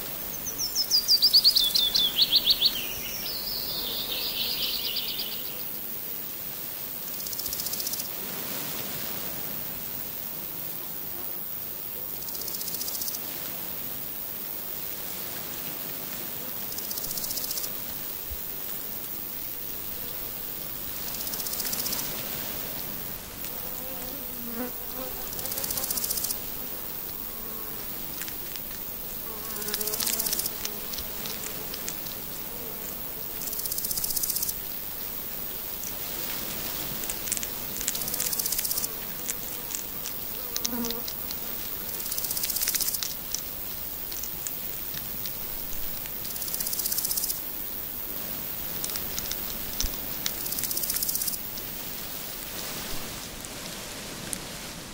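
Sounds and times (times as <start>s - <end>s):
insect buzzing song: 0.0s - 8.1s, 16.3s - 51.8s
hedgehogs chewing food: 36.1s - 46.8s.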